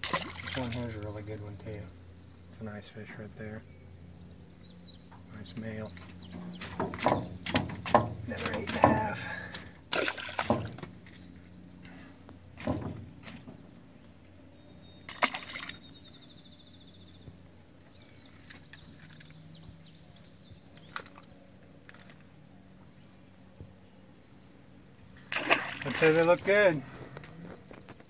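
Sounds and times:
water sloshing: 0.0 - 1.6, 5.5 - 11.5, 15.0 - 16.1, 25.1 - 27.4
net frame knocking: 6.3 - 9.1, 10.0 - 10.9, 12.6 - 13.6.

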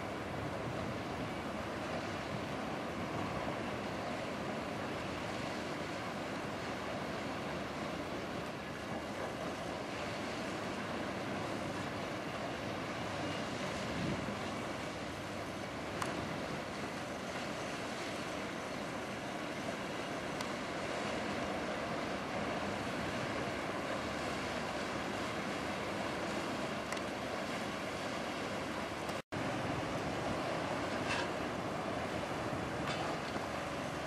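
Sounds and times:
harbour water: 0.0 - 34.0
wind on microphone: 13.2 - 14.7.

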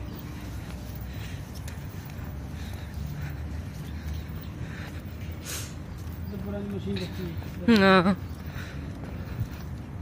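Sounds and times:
steady low rumble: 0.0 - 10.0.

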